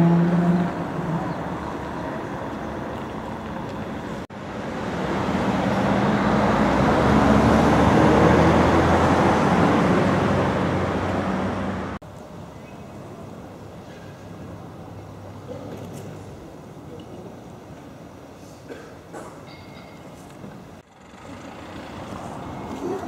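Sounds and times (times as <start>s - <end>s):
vehicle passing close by: 0.0s - 12.0s, 20.8s - 23.0s
street traffic noise: 0.0s - 23.0s.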